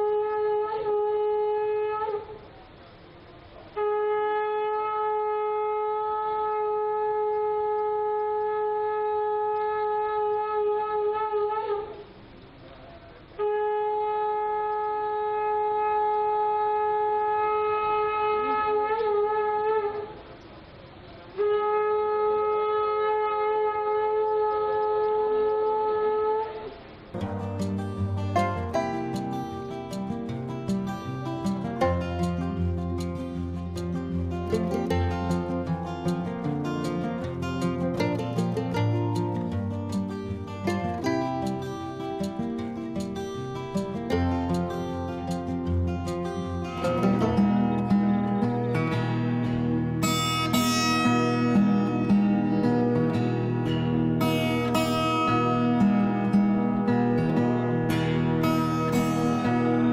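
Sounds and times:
conch shell blowing: 0:00.0 - 0:02.6, 0:03.7 - 0:12.3, 0:13.3 - 0:20.4, 0:21.3 - 0:59.9
music with plucked strings: 0:27.2 - 0:59.9.

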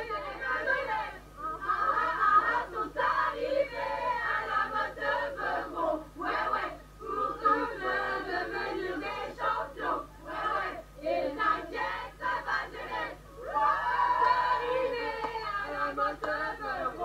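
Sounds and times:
group chanting and shouting: 0:00.0 - 0:17.0.

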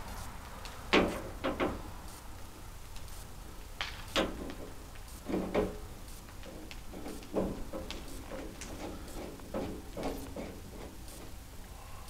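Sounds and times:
knocks and clunks of metal cover: 0:00.9 - 0:01.9, 0:04.2 - 0:11.0.

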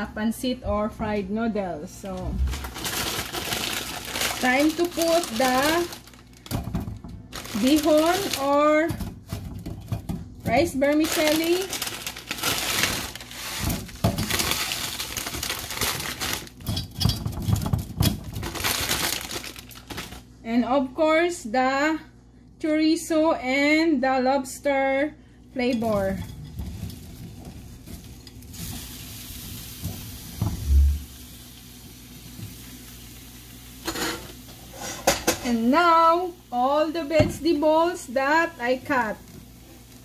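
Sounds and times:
dry noodles crackling and snapping: 0:02.5 - 0:06.6, 0:07.3 - 0:08.6, 0:10.8 - 0:16.7, 0:18.0 - 0:20.3
faint sizzling in skillet: 0:26.7 - 0:40.0.

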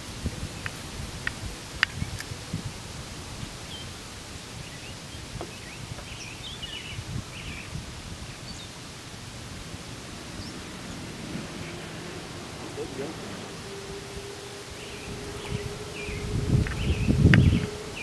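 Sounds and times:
wind rumble on microphone: 0:00.0 - 0:18.0
bird chirps: 0:04.6 - 0:08.8, 0:10.2 - 0:18.0.

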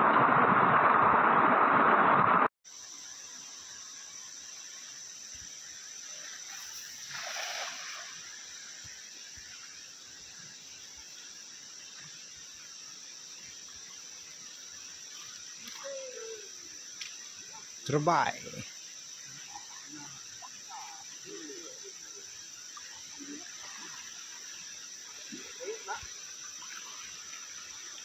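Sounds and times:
insects droning: 0:02.6 - 0:28.0
cast net splashing into water: 0:07.0 - 0:08.2.

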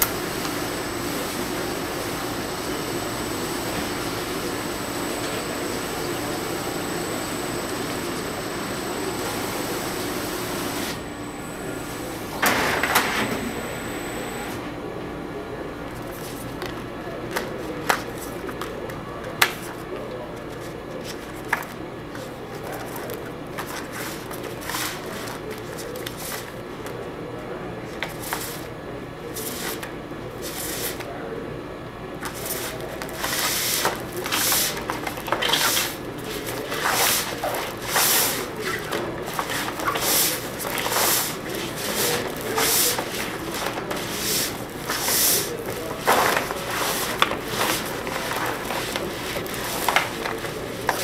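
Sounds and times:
trimmer and conveyor running: 0:00.0 - 0:14.9
steady low hum: 0:00.0 - 0:17.7
paper sheets rustling and flapping: 0:32.2 - 0:51.0.

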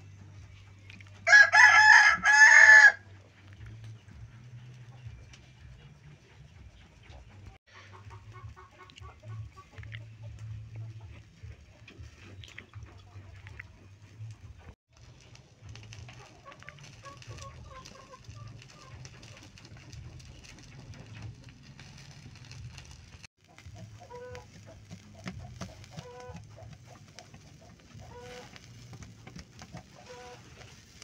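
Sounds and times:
chickens clucking: 0:00.1 - 0:31.0.

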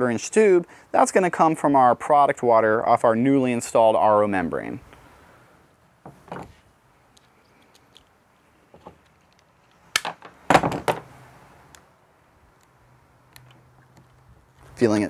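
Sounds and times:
clatter of knocks: 0:10.1 - 0:11.1.

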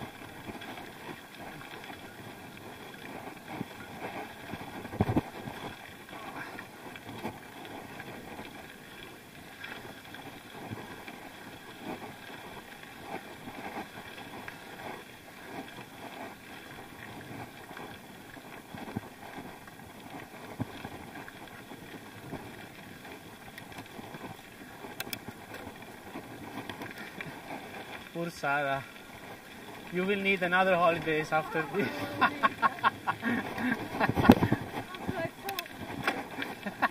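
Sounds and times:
bicycle rolling on dirt: 0:00.0 - 0:36.9
bike rattles and knocks: 0:03.1 - 0:07.4.

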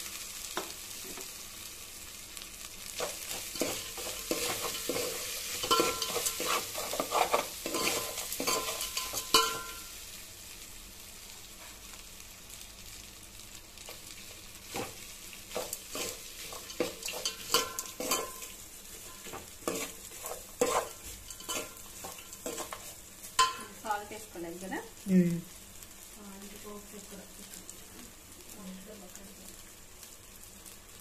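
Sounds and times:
metal spoon scraping a pot: 0:03.5 - 0:09.8, 0:15.6 - 0:18.5, 0:19.2 - 0:23.7.

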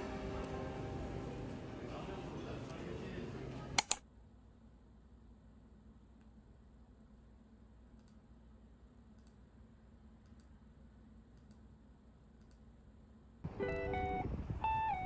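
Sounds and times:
faint room hum: 0:00.0 - 0:15.0
high double click: 0:03.8 - 0:04.0.

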